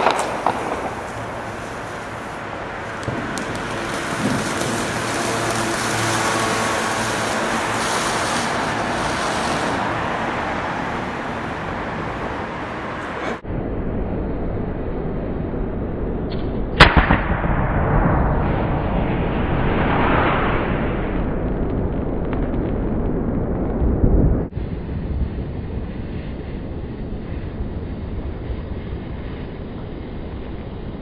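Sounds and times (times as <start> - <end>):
firework bang: 0.0 - 10.8, 16.8 - 25.9
firework fountain hissing: 0.0 - 13.4, 24.5 - 31.0
dull low noise: 9.8 - 31.0.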